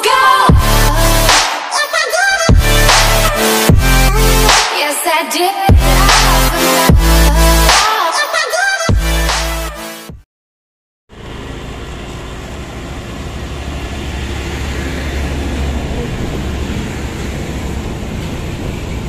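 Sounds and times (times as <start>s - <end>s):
low engine rumble: 11.1s - 19.0s
wind and road noise: 11.2s - 19.0s.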